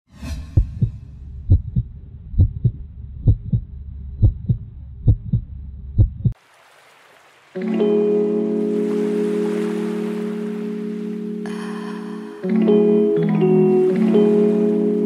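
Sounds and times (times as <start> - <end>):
short whoosh: 0.1 - 1.8
heartbeat thumps: 0.3 - 6.4.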